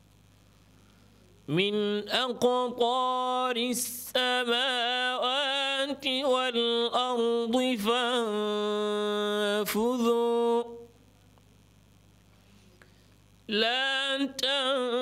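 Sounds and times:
man chanting recitation: 0:01.5 - 0:10.9, 0:13.5 - 0:15.0
short breath: 0:12.3 - 0:13.2.

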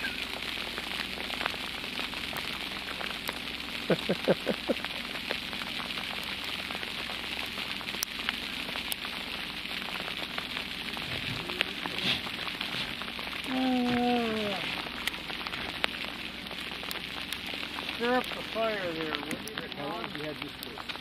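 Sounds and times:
hail pattering on a boat: 0:00.0 - 0:21.0
drawn-out voice: 0:13.4 - 0:14.8.

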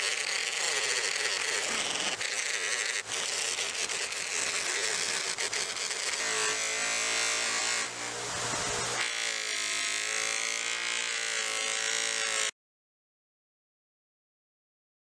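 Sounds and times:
metal hissing against grinding wheel: 0:00.0 - 0:06.5
bench grinder motor humming: 0:00.0 - 0:12.5.

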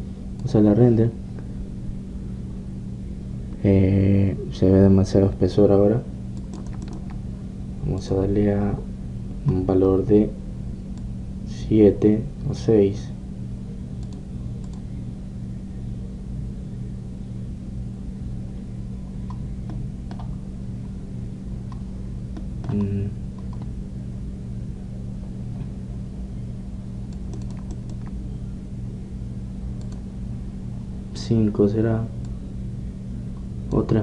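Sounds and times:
steady low hum: 0:00.0 - 0:34.0
keyboard and mouse clicks: 0:06.4 - 0:07.2, 0:19.3 - 0:20.3, 0:22.4 - 0:23.7, 0:27.1 - 0:28.2.

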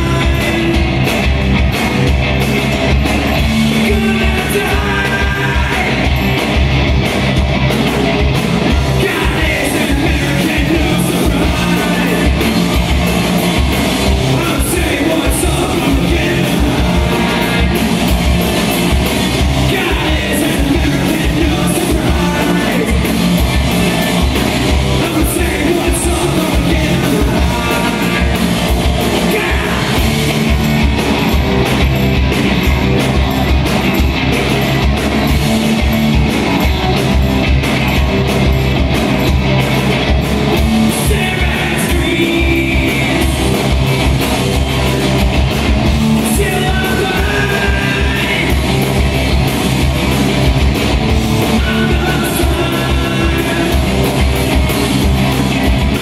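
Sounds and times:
person singing lead vocal: 0:00.0 - 0:01.0, 0:03.7 - 0:06.2, 0:08.7 - 0:12.6, 0:14.1 - 0:18.0, 0:19.6 - 0:30.3, 0:40.9 - 0:43.7, 0:46.1 - 0:48.9, 0:51.4 - 0:54.3
distorted electric guitars: 0:00.0 - 0:56.0
drum kit: 0:00.0 - 0:56.0.

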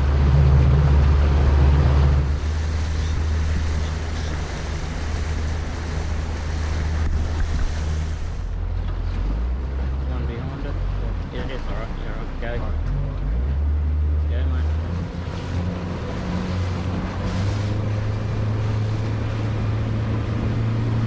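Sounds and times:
wind on microphone: 0:00.0 - 0:09.6
outboard motor running: 0:00.0 - 0:21.0
water rushing past hull: 0:00.0 - 0:21.0.

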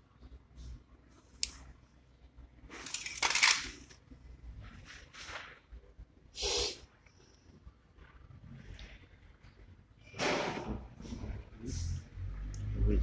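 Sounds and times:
metal parts clattering: 0:02.7 - 0:03.9.

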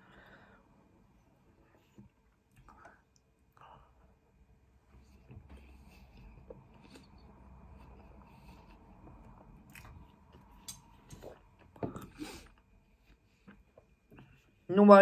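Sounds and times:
person chewing food: 0:04.9 - 0:14.6.

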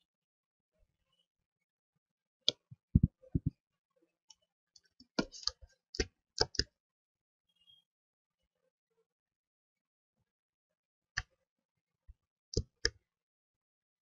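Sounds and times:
computer mouse clicking: 0:05.2 - 0:06.7.

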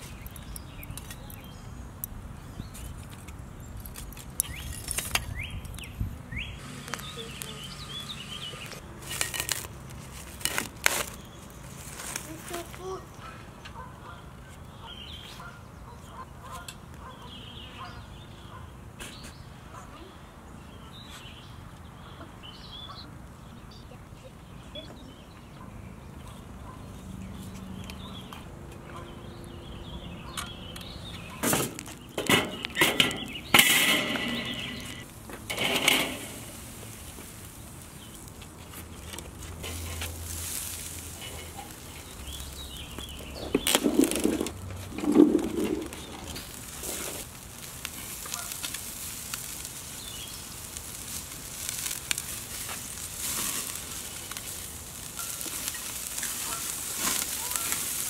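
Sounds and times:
chicken wings sizzling on grill: 0:06.5 - 0:11.2, 0:30.8 - 0:58.0
wire grill basket clanking: 0:31.4 - 0:37.2, 0:39.0 - 0:58.0.

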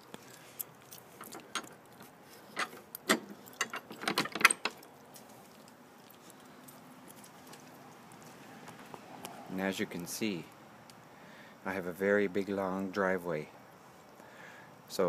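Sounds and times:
metal gate latch clicking: 0:02.6 - 0:04.8.

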